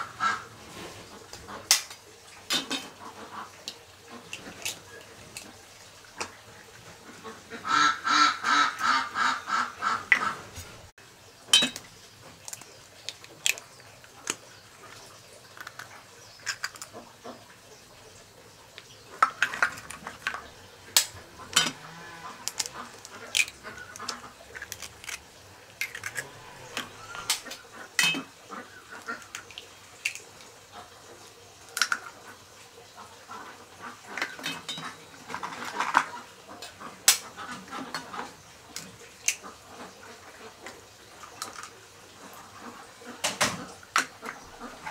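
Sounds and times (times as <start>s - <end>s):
duck quacking: 0.0s - 0.5s, 7.2s - 10.4s
eggshells cracking: 11.5s - 17.0s, 18.8s - 28.3s, 28.9s - 30.4s.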